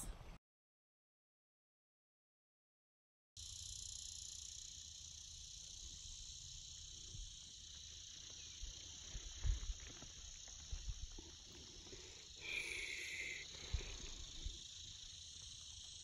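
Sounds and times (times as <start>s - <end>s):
high-pitched insect chorus: 3.4s - 16.0s.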